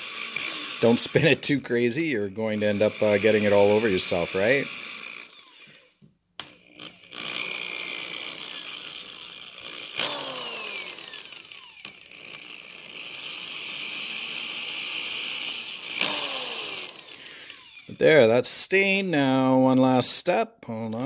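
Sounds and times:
electric drill motor revving: 0:00.0 - 0:18.0.

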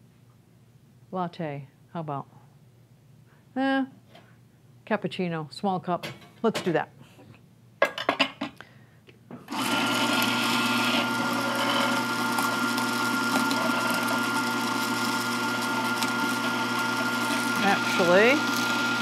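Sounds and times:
coffee grinder grinding: 0:09.5 - 0:19.0.

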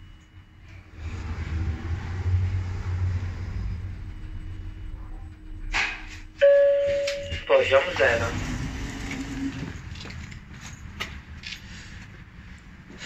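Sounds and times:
lift arrival beep: 0:00.0 - 0:09.3
lift car rumbling: 0:00.0 - 0:13.0.

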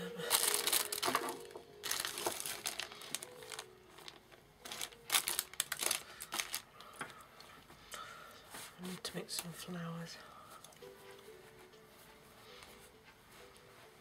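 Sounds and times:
crinkly rustling of materials: 0:00.0 - 0:09.7.

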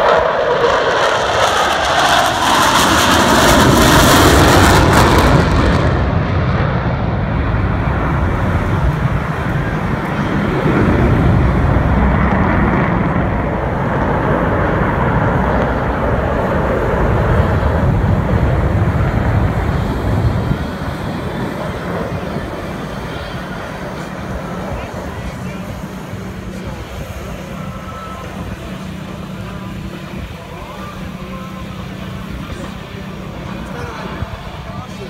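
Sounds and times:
jets flying over roaring: 0:00.0 - 0:35.0.

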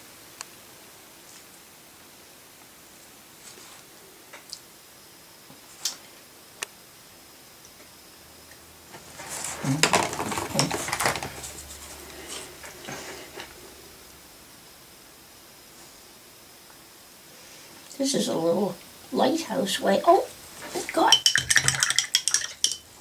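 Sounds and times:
small objects clattering on table: 0:08.9 - 0:13.0, 0:20.6 - 0:23.0.

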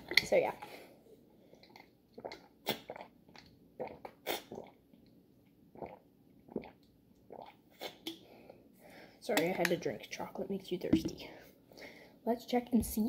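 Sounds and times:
person gulping and swallowing: 0:01.5 - 0:08.2.

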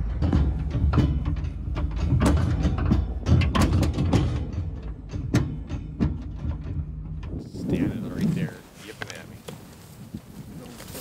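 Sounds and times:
steel bucket knocking and rattling: 0:00.0 - 0:07.5.

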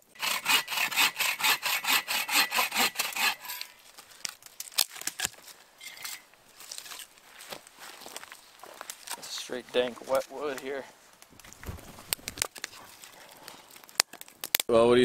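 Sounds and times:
hand saw cutting log: 0:00.0 - 0:03.8.

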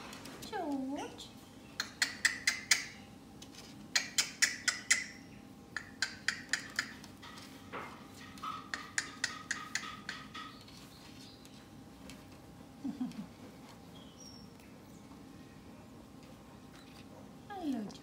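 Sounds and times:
parrot clicking: 0:01.8 - 0:03.0, 0:03.9 - 0:07.5, 0:08.2 - 0:10.8.

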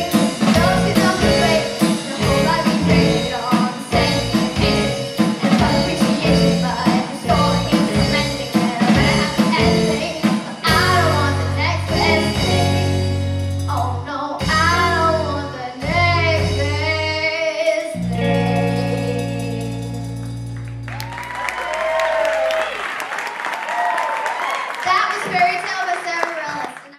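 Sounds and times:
girl singing: 0:00.0 - 0:13.0, 0:13.7 - 0:19.9
drum kit: 0:00.0 - 0:17.4, 0:18.0 - 0:22.8
bass guitar: 0:00.0 - 0:22.2
electric guitar chords: 0:18.0 - 0:21.2.

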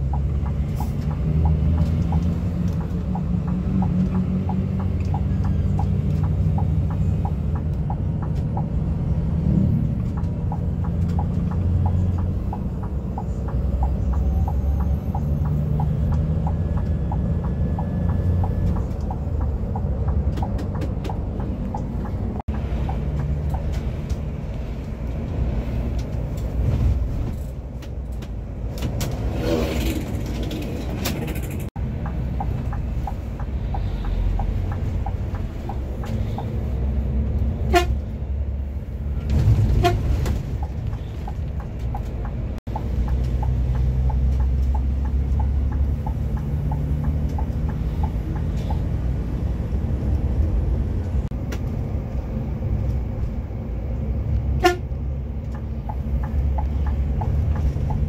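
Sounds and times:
light regular ticking: 0:00.0 - 0:09.3, 0:09.9 - 0:25.0, 0:31.5 - 0:37.5, 0:40.6 - 0:49.4, 0:55.3 - 0:58.0
coach engine and road rumble: 0:00.0 - 0:58.0
vehicle horn: 0:37.7 - 0:38.0, 0:39.7 - 0:40.0, 0:54.6 - 0:54.9.

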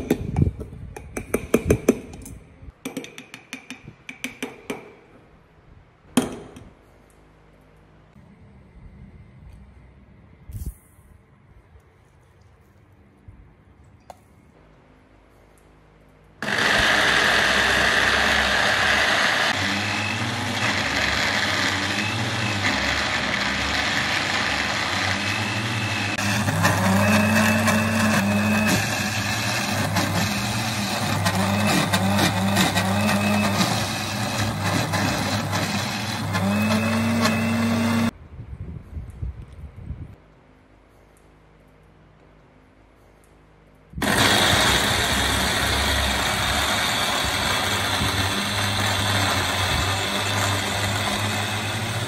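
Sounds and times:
electric blender grinding: 0:16.4 - 0:38.2, 0:44.0 - 0:52.0.

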